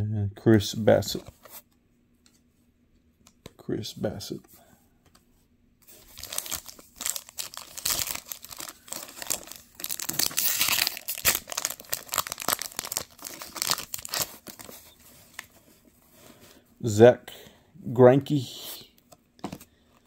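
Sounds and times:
foil wrapper crinkling and tearing: 5.9s - 15.5s.

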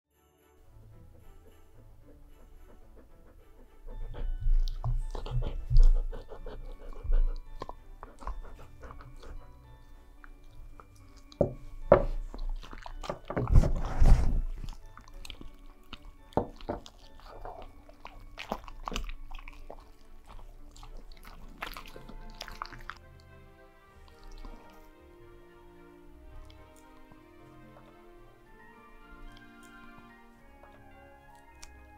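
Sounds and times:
background music: 0.1s - 31.9s
dog crunching a hard treat: 10.2s - 23.0s.

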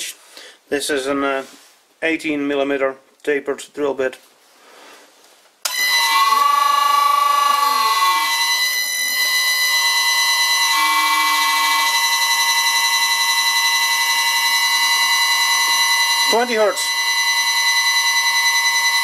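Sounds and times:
lathe motor starting up: 5.7s - 9.3s
high-pitched electrical whine: 5.7s - 19.0s
motor vibrating: 6.0s - 9.3s.

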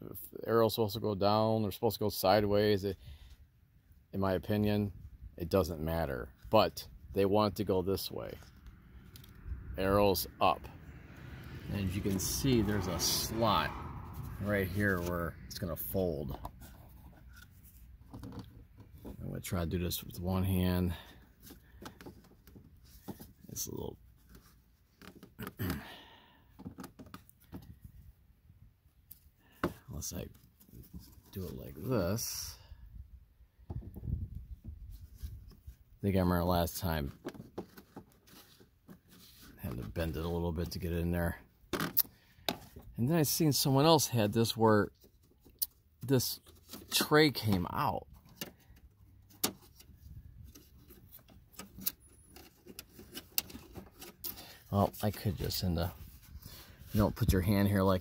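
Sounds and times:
scraping rustle: 11.7s - 25.7s, 29.9s - 32.4s, 34.8s - 40.9s, 44.4s - 58.0s.

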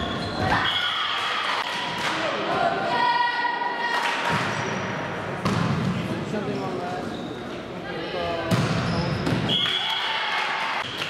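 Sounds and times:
girls shouting and cheering: 0.4s - 4.2s.

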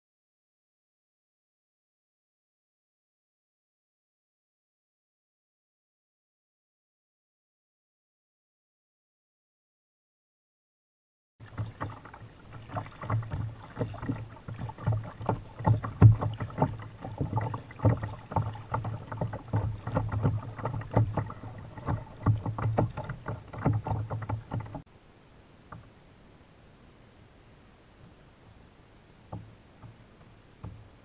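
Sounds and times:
paddle knocking on hull: 11.4s - 24.8s, 29.3s - 31.0s
water sloshing against hull: 11.4s - 24.9s, 28.0s - 31.0s
paddle blades splashing: 11.4s - 26.1s, 27.8s - 31.0s.

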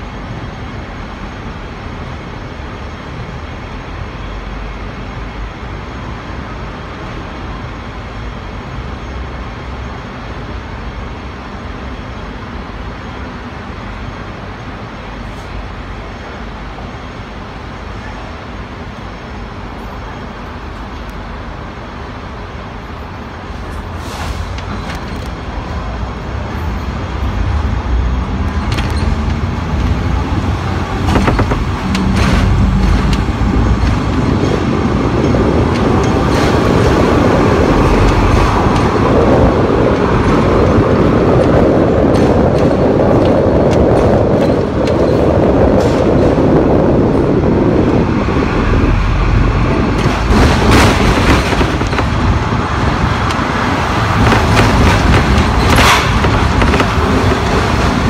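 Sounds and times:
steel wheels rumbling on rail: 0.0s - 58.0s
wheels knocking over rail joints: 28.4s - 47.1s, 49.7s - 58.0s.

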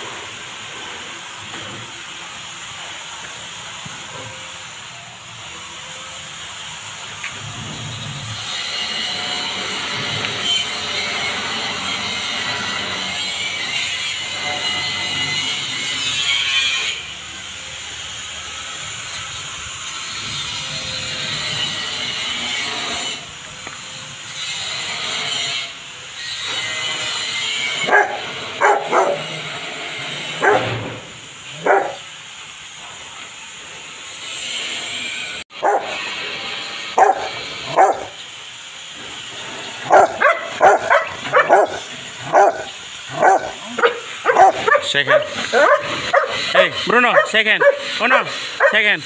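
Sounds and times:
water spraying from hose: 0.0s - 14.8s, 15.4s - 49.0s
dog barking: 27.8s - 29.4s, 30.4s - 30.8s, 31.6s - 32.0s, 35.6s - 36.0s, 37.0s - 38.2s, 39.8s - 48.9s.

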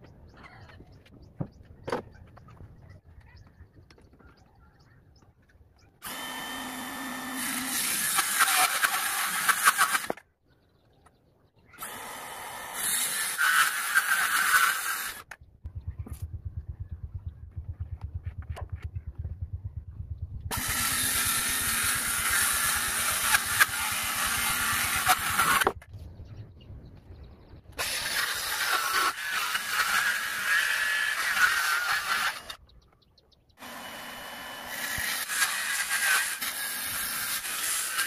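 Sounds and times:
circular saw cutting plywood: 6.0s - 10.2s, 11.8s - 15.4s, 20.5s - 25.9s, 27.8s - 32.6s, 33.6s - 38.0s.

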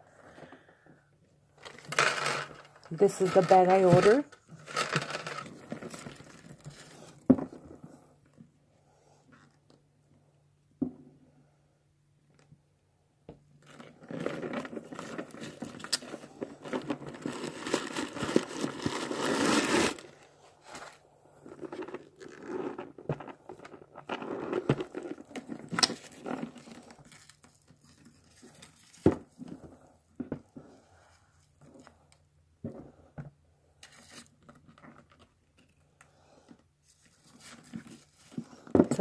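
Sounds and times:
packaging crinkling and rustling: 1.6s - 7.2s, 14.4s - 29.6s, 36.9s - 39.0s.

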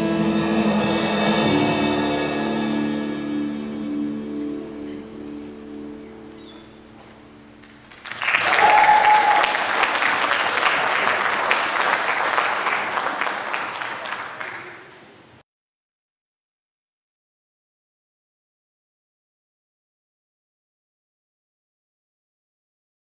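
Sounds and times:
backing music held notes: 0.0s - 7.9s
audience applause and cheering: 7.6s - 15.3s.

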